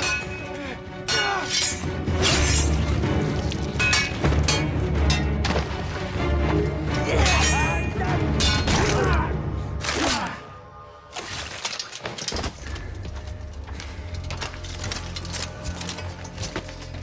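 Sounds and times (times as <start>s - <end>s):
swords clashing: 0.0s - 0.4s, 1.0s - 2.9s, 3.8s - 5.5s, 7.2s - 9.2s
film score with low drone: 0.0s - 17.0s.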